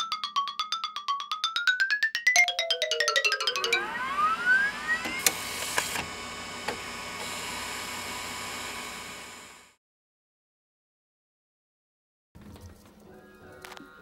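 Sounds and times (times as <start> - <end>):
machine winding up with rising whine: 3.2 - 9.8.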